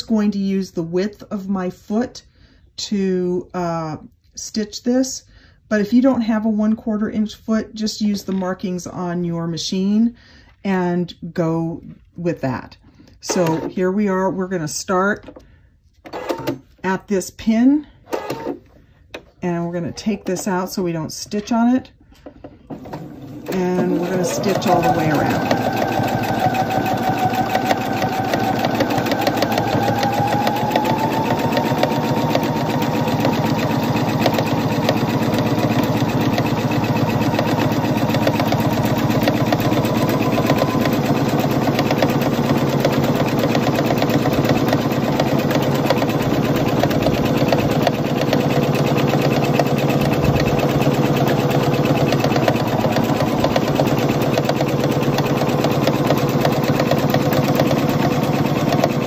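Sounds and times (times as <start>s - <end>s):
sewing machine stitching: 13.2s - 13.9s, 16.0s - 16.6s, 18.1s - 18.7s, 22.6s - 59.0s.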